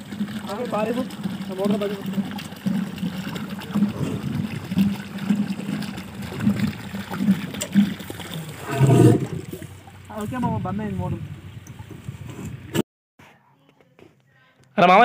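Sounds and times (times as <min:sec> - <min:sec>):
water surging from pump: 0:00.0 - 0:11.9
low pump hum: 0:00.0 - 0:12.8.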